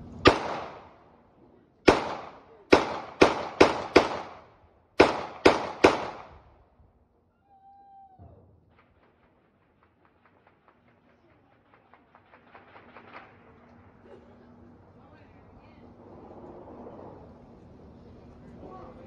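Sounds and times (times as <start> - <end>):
gunshots with echo: 0.2 - 1.0, 1.9 - 6.4.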